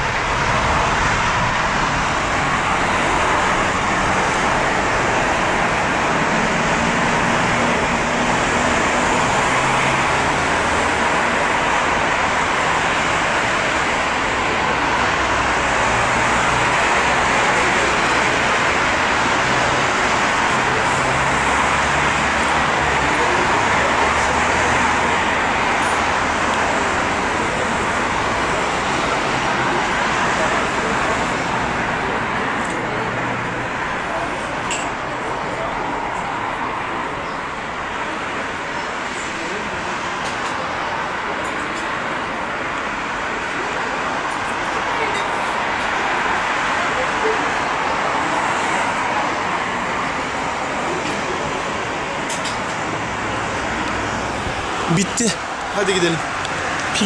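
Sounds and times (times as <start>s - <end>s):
jet engines roaring at takeoff: 0.0s - 40.8s
road traffic: 0.0s - 57.0s.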